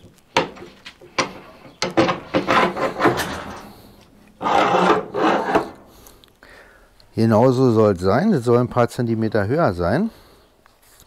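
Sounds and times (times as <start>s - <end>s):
wood rubbing and scraping: 0.0s - 6.3s.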